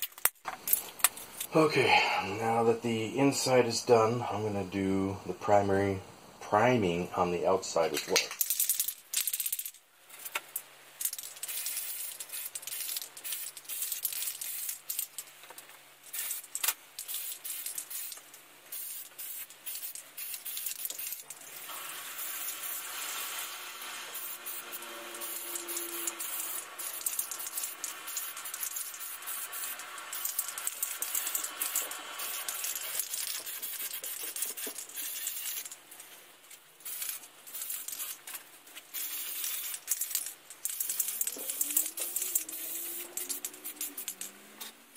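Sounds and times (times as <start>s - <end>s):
spray can mixing ball rattling: 7.9s - 44.8s
spray can hissing: 11.0s - 15.2s, 16.1s - 35.8s, 36.8s - 44.5s.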